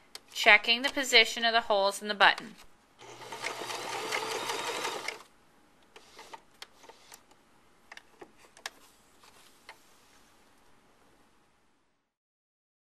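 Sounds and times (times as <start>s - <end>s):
sewing machine stitching: 3.0s - 5.2s, 6.0s - 7.2s.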